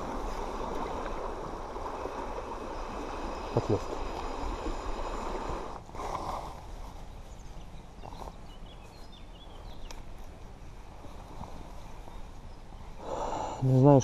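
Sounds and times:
river rushing: 0.0 - 6.1.

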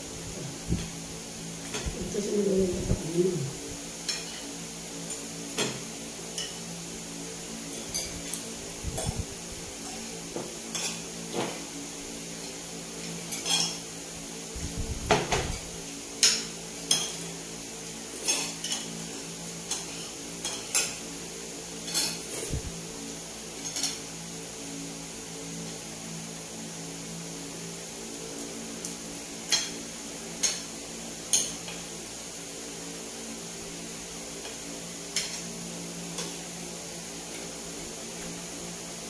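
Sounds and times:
steady low hum: 0.0 - 39.0
cutlery clinking on a plate: 13.1 - 13.8, 16.2 - 17.2, 18.2 - 19.0, 19.7 - 21.0, 21.8 - 22.3, 23.6 - 24.0, 29.5 - 29.8.

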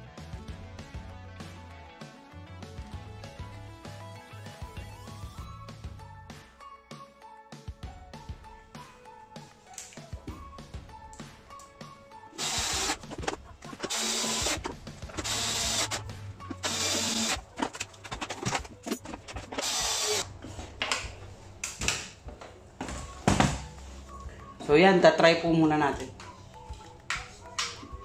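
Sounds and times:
quiet background music: 0.0 - 28.0
cordless drill driving screws: 12.4 - 13.0, 13.9 - 17.4, 19.6 - 20.2
clicks and handling: 12.9 - 19.6.

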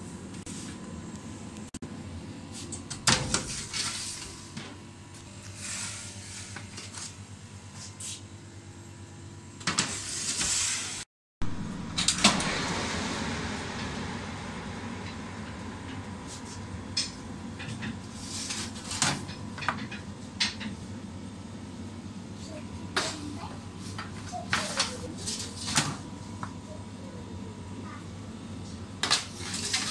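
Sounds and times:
oven humming: 0.0 - 29.9
metal baking trays clanking: 29.0 - 29.9.

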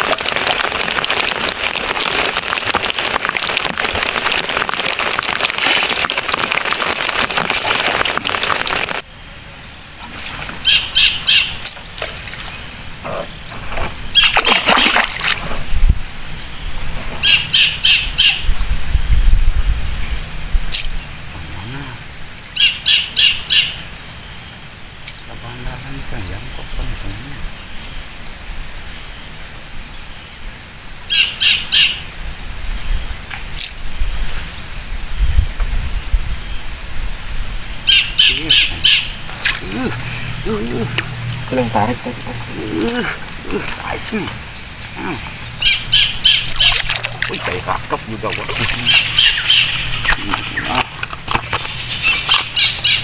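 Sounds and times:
bird calls: 9.7 - 18.6, 20.7 - 25.6, 31.1 - 32.1, 37.8 - 53.0
low rumbling: 34.8 - 52.8.

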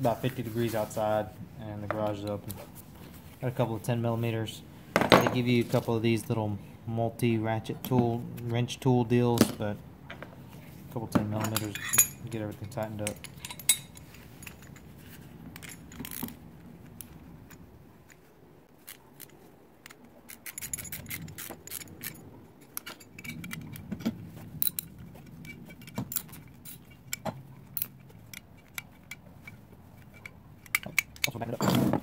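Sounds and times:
metal parts clinking and rattling: 11.2 - 32.0.

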